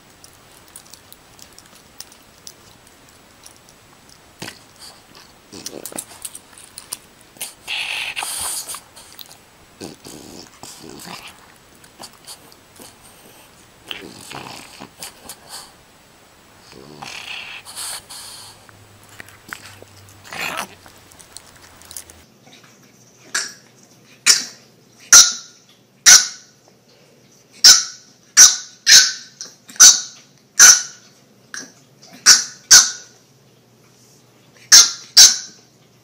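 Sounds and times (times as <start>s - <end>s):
dog barking: 29.8s - 31.0s, 34.7s - 35.5s.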